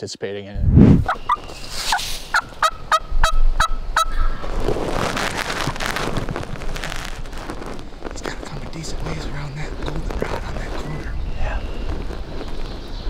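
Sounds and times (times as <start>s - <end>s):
steady rushing noise: 0.6s - 2.2s
wild turkey calling: 1.1s - 4.5s.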